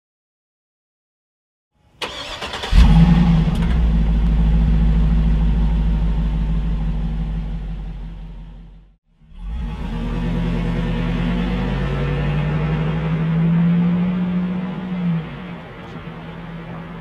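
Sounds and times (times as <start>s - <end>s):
engine cranking: 2.0s - 4.8s
engine running deep and even: 2.1s - 17.0s.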